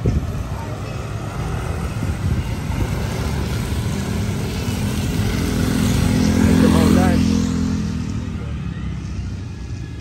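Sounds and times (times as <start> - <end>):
wind on microphone: 0.0 - 0.8, 1.6 - 6.5
motor scooters riding past: 0.0 - 10.0
tyres on wet pavement: 0.0 - 10.0.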